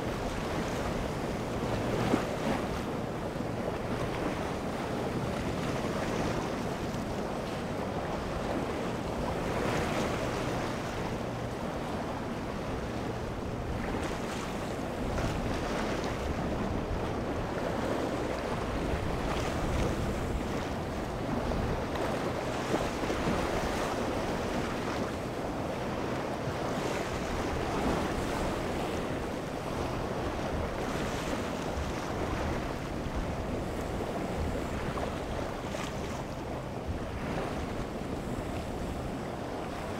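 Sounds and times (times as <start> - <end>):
boat engines humming: 0.0 - 39.9
waves breaking: 0.0 - 39.9
wind buffeting microphone: 0.0 - 39.9.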